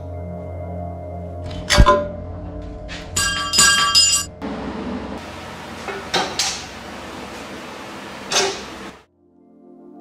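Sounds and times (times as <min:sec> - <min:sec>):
metal clinking with ringing: 0:03.0 - 0:04.4.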